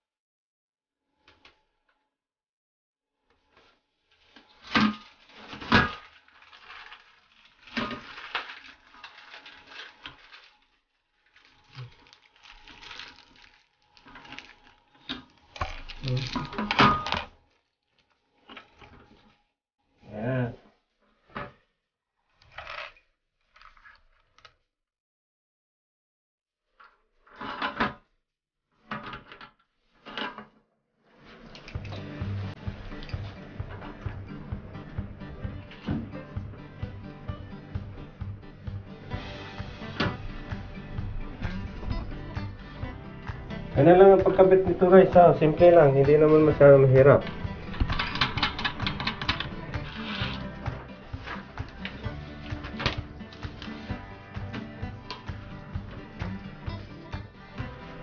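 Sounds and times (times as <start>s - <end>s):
music: 31.3s - 58.0s
plastic toilet seat clicking and rattling: 47.2s - 50.9s.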